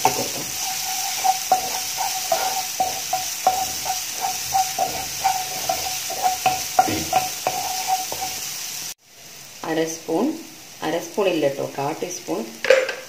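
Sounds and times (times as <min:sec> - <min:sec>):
wooden spatula scraping pan: 0:00.0 - 0:08.5
paste sizzling in oil: 0:00.0 - 0:12.6.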